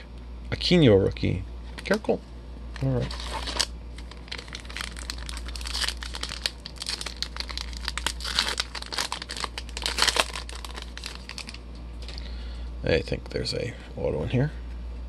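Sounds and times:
foil wrapper crinkling and tearing: 2.8s - 12.2s.

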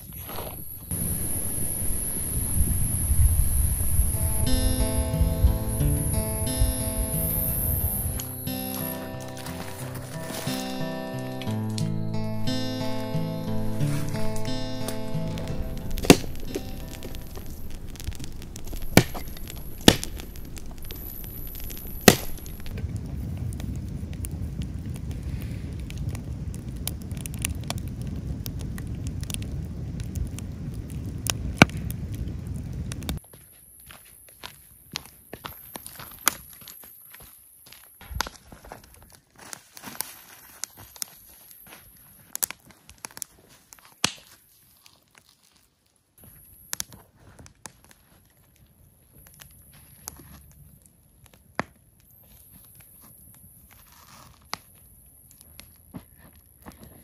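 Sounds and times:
campfire crackling and popping: 0.0s - 57.0s
sharp pops: 0.1s - 22.8s
foil blanket crinkling: 8.8s - 11.8s, 38.0s - 46.2s, 52.2s - 57.0s.

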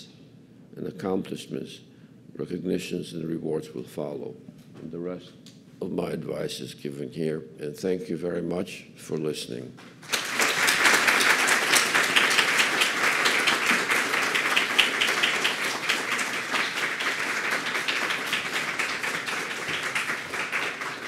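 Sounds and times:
audience applauding: 10.0s - 21.0s.

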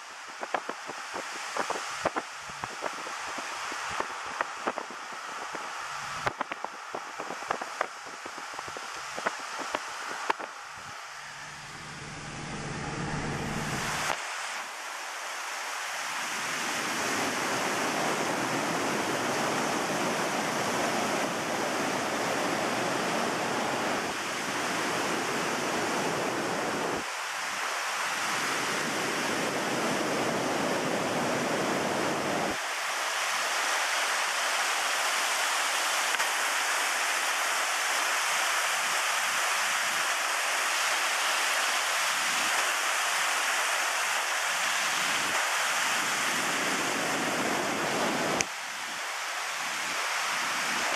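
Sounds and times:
stream rushing over boulders: 0.0s - 12.0s, 13.5s - 50.9s
low hum of moving car: 5.1s - 14.2s.

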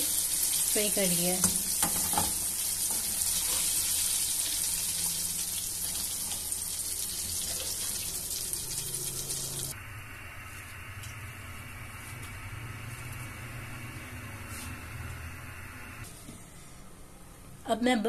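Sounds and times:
hot oil sizzling: 0.0s - 9.8s.

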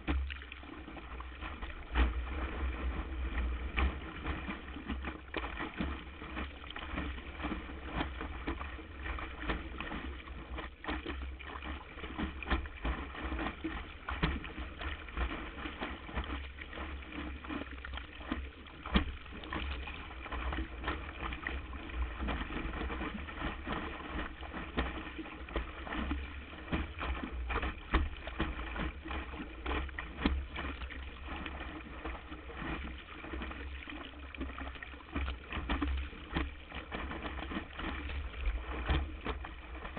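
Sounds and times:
steady low rumble: 0.0s - 10.6s
water rushing and splashing: 0.0s - 39.9s.

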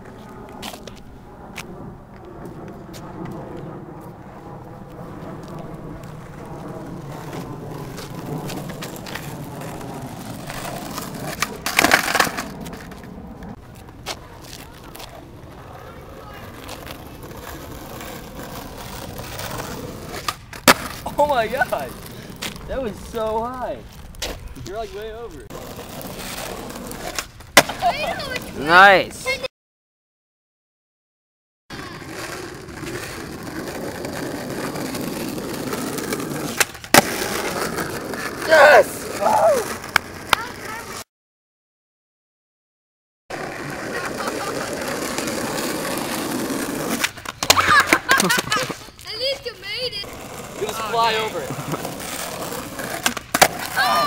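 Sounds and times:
skateboard wheels rolling on asphalt: 0.0s - 29.5s, 31.7s - 41.1s, 43.3s - 54.0s
skateboard clacks: 7.1s - 13.1s, 13.8s - 22.7s, 25.6s - 28.6s, 31.8s - 41.0s, 43.3s - 54.0s.

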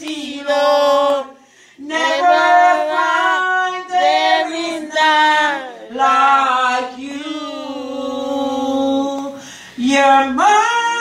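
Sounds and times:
woman singing into microphone: 0.0s - 7.3s.

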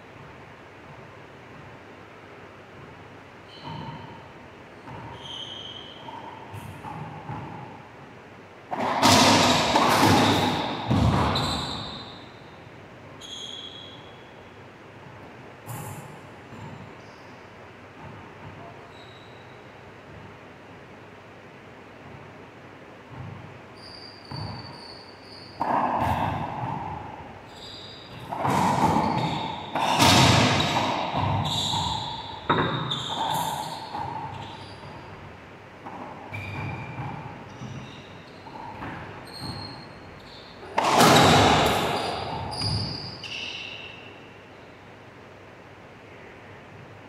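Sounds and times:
racquetball striking walls: 2.7s - 12.6s, 22.0s - 44.1s
sneaker squeaks on hardwood: 3.4s - 7.9s, 8.7s - 14.4s, 18.0s - 20.3s, 23.1s - 44.8s.

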